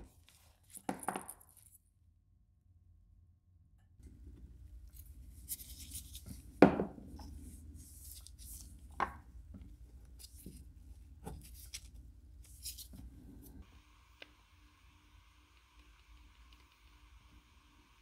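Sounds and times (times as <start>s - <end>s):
gloved hands rubbing and rustling: 4.8s - 13.6s.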